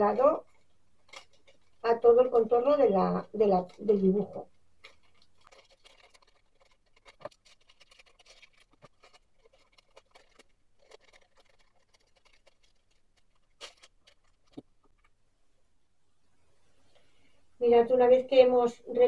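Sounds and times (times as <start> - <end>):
scissors snipping paper: 3.6 - 14.6.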